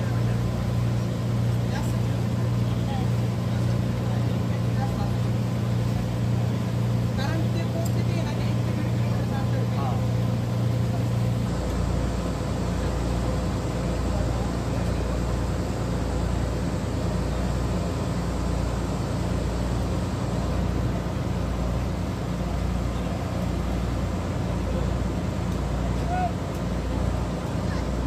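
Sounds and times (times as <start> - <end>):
ferry engine drone: 0.0 - 28.0
hiss of wind and water: 0.0 - 28.0.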